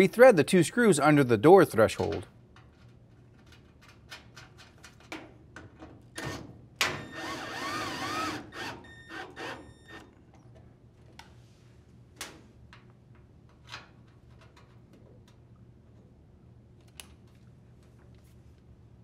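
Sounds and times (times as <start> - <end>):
drill driver whining: 7.0 - 10.1.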